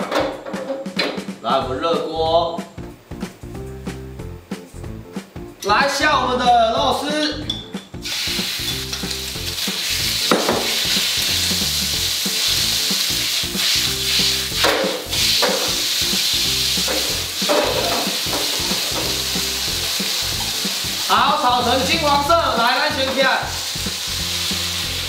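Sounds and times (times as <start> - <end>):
pork sizzling in hot oil: 7.9 - 25.0
chopsticks stirring in wok: 8.1 - 22.0.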